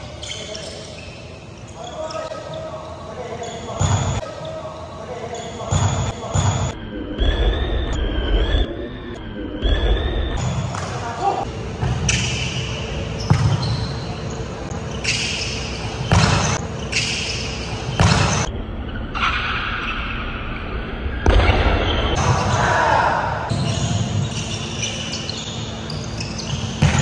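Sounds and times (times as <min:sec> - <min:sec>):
volleyball slaps in gym hall: 0:03.7 - 0:04.3, 0:05.6 - 0:08.4, 0:09.6 - 0:14.2, 0:15.0 - 0:18.5, 0:21.2 - 0:25.3, 0:26.2 - 0:27.0.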